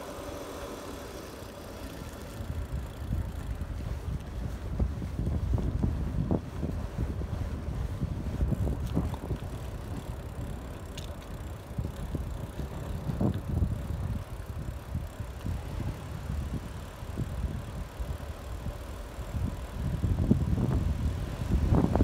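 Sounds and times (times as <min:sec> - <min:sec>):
wheels rolling over asphalt: 0:00.0 - 0:22.0
wind buffeting microphone: 0:01.8 - 0:22.0.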